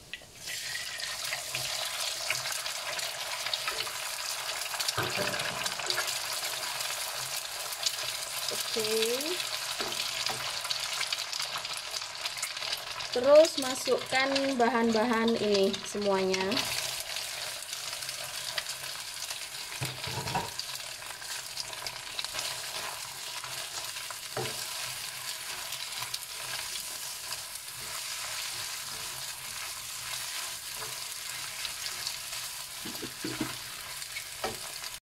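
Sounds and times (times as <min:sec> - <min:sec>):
food sizzling in hot oil: 0:00.0 - 0:35.0
spatula knocking: 0:32.8 - 0:33.6.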